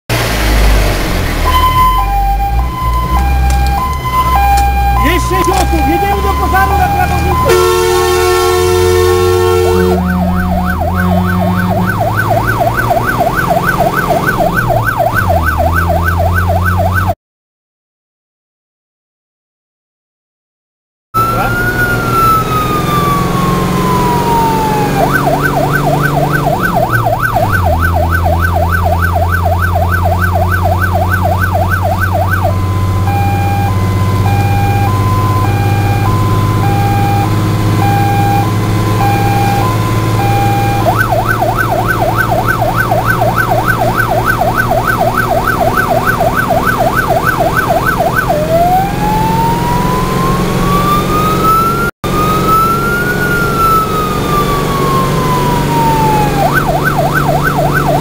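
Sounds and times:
truck engine drone: 0.1 - 17.2, 21.2 - 58.0
electronic siren: 1.4 - 17.2, 21.2 - 58.0.

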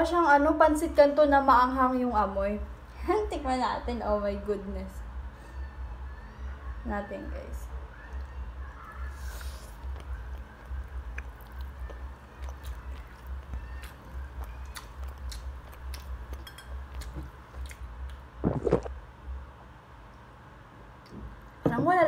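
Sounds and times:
chewing noodles: 7.9 - 18.9
wet mouth clicks: 9.3 - 19.0.

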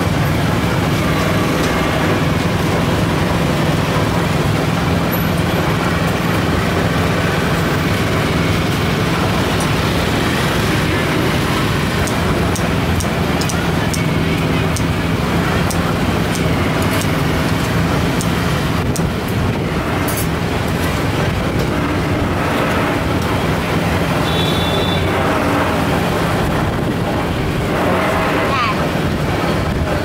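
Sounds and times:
engine low hum: 0.0 - 30.0
traffic noise: 0.0 - 30.0.

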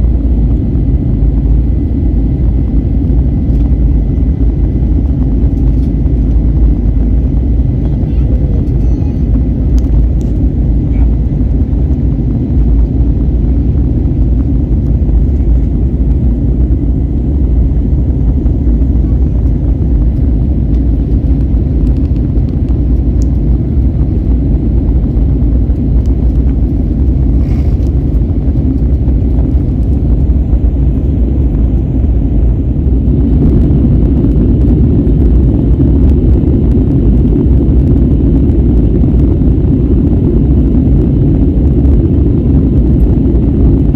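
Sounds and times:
jet engines roaring in cabin: 0.0 - 43.9
rushing air: 0.0 - 43.9.

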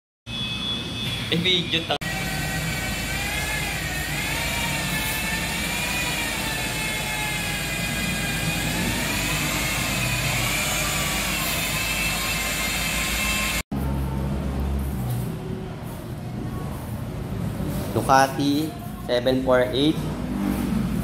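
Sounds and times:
electric motor whining: 2.0 - 13.6.

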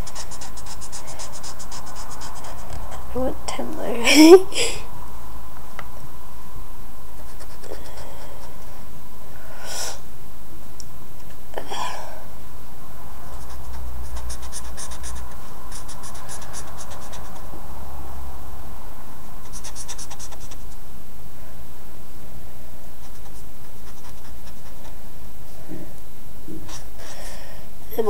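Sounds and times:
felt-tip pen scribbling on paper: 0.0 - 3.0, 7.2 - 8.6, 13.3 - 17.4, 19.4 - 20.8, 23.0 - 25.0.

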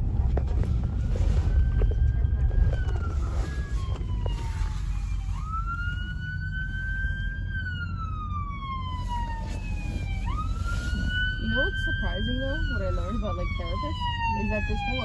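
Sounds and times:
low traffic rumble: 0.0 - 15.0
siren wailing: 0.3 - 15.0.

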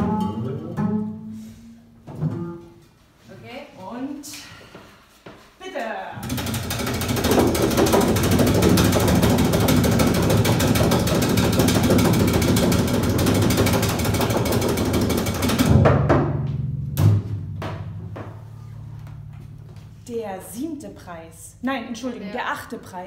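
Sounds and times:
double bass tremolo: 0.0 - 2.8, 6.2 - 21.6.

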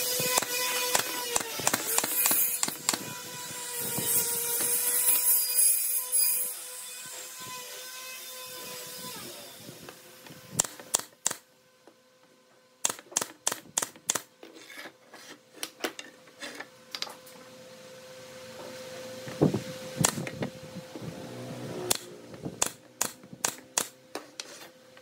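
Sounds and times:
pneumatic nailer firing: 0.0 - 5.4, 10.5 - 11.5, 12.8 - 14.3, 20.0 - 20.5, 21.8 - 24.0.

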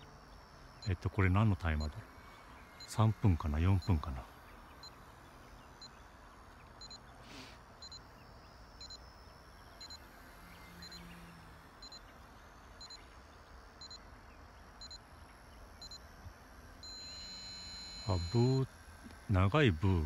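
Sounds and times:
timer beeping double pips: 7.8 - 8.1, 8.7 - 9.2, 16.8 - 18.7.

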